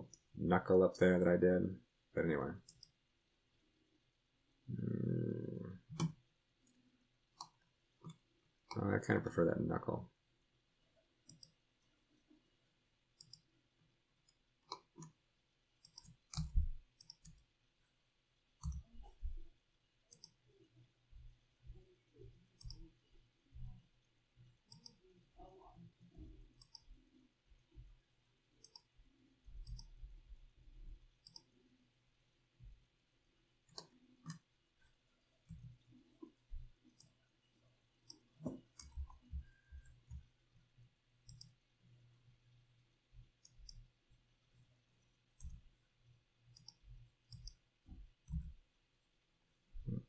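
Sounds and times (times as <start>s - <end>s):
computer mouse clicks: 2.6s - 3.0s, 5.9s - 6.8s, 7.4s - 8.8s, 11.2s - 13.5s, 14.2s - 15.2s, 15.8s - 17.4s, 18.6s - 18.9s, 20.1s - 20.4s, 22.6s - 22.9s, 24.6s - 25.9s, 26.5s - 27.0s, 28.6s - 28.9s, 29.6s - 30.0s, 31.2s - 31.6s, 33.7s - 34.5s, 35.2s - 36.3s, 36.9s - 40.3s, 41.2s - 42.1s, 43.4s - 43.9s, 46.5s - 47.6s.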